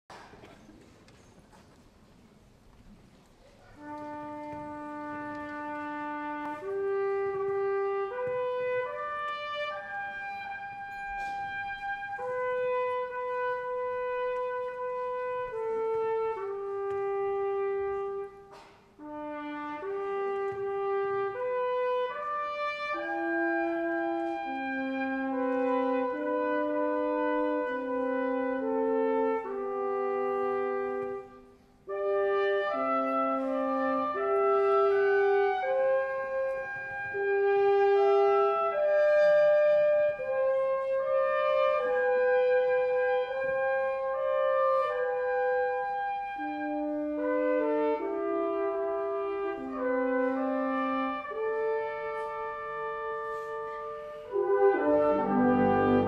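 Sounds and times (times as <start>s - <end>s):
slow solo brass melody: 3.6s - 56.0s.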